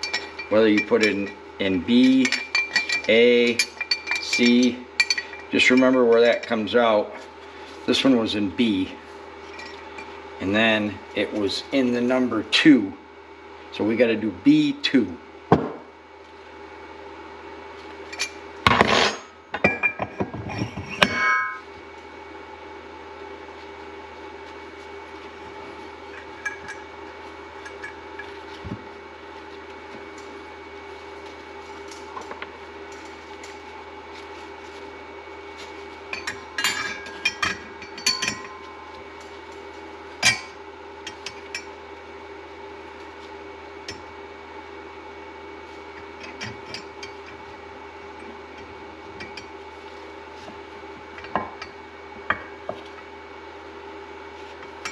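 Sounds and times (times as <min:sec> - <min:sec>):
steady hum: 0:00.0 - 0:54.9
metal parts and tools clinking: 0:02.0 - 0:06.6.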